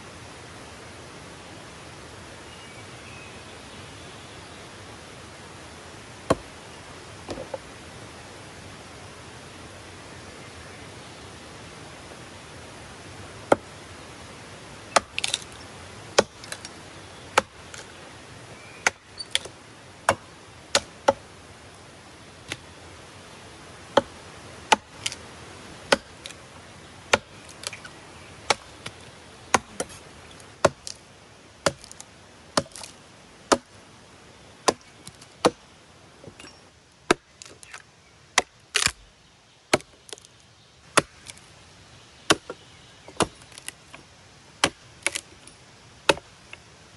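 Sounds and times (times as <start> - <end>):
hatchet chopping log: 6.3 - 6.5, 13.5 - 13.7, 14.9 - 15.5, 16.2 - 16.7, 17.4 - 17.9, 18.8 - 21.2, 24.7 - 25.2, 25.9 - 26.4, 27.1 - 27.8, 28.5 - 30.0, 30.6 - 31.0, 31.6 - 33.7, 34.6 - 35.6, 37.1 - 37.8, 38.4 - 39.0, 39.7 - 40.3, 40.9 - 41.4, 42.3 - 43.8, 44.6 - 45.3, 46.1 - 46.3.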